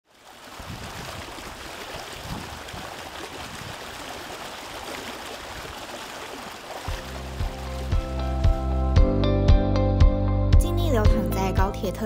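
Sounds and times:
stream flowing over rocks: 0:00.0 - 0:08.6.

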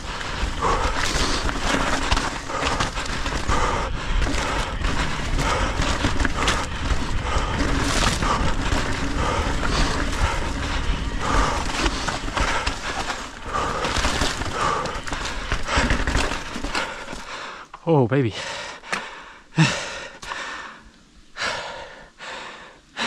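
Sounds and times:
wind buffeting microphone: 0:00.0 - 0:16.2
bike rattling: 0:00.0 - 0:17.8
tyre and trail rumble: 0:00.0 - 0:22.4.

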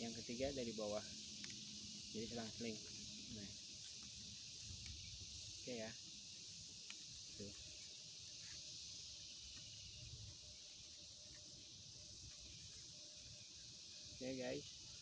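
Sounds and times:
steady high hiss: 0:00.0 - 0:15.0
faint clicks: 0:01.3 - 0:01.6.

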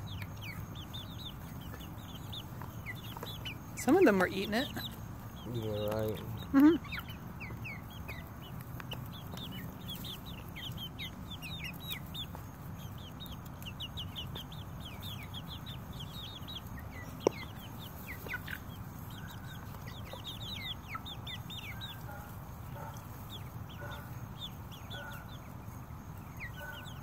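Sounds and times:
chicks peeping: 0:00.0 - 0:27.0.

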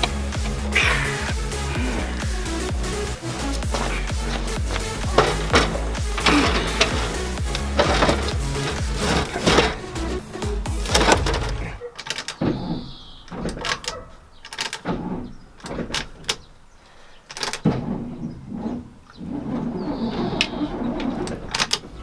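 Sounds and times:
metal clanks and scrapes: 0:03.3 - 0:12.2
short squeak: 0:17.8 - 0:21.5.

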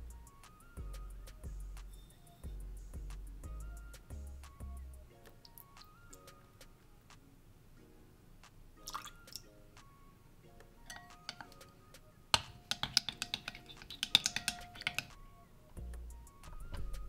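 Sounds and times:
chopsticks clicking on glass bowl: 0:10.9 - 0:11.7, 0:12.4 - 0:15.2.

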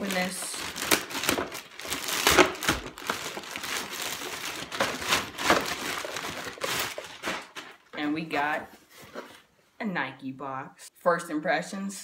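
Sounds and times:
wrapper crinkling: 0:00.0 - 0:08.0.

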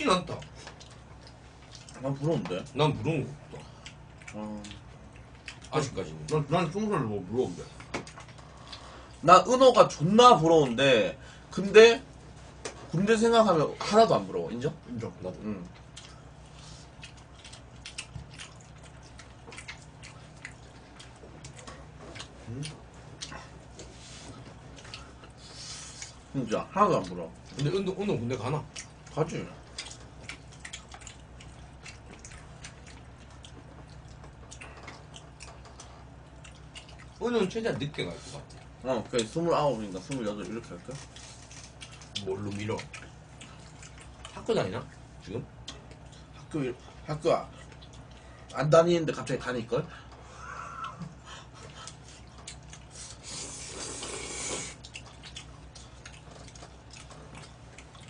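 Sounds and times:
people chewing: 0:00.0 - 0:58.0
steady low hum: 0:00.0 - 0:58.0
person slurping noodles: 0:53.0 - 0:54.8.

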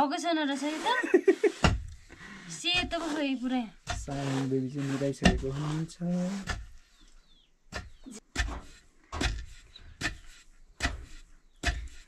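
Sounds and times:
pestle pounding grain: 0:01.5 - 0:02.0, 0:02.6 - 0:06.8, 0:07.7 - 0:12.0.

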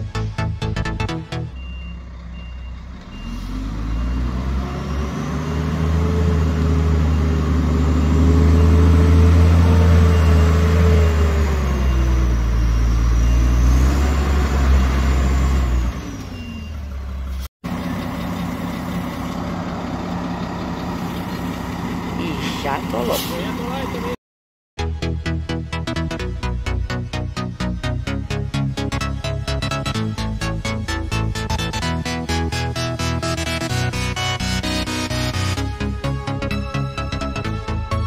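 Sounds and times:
truck engine straining: 0:00.0 - 0:24.2, 0:25.7 - 0:38.0
reversing beeper: 0:01.4 - 0:17.0.

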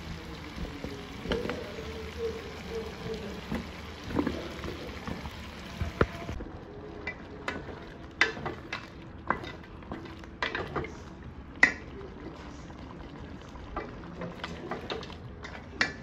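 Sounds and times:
meat sizzling in pot: 0:00.0 - 0:06.4.

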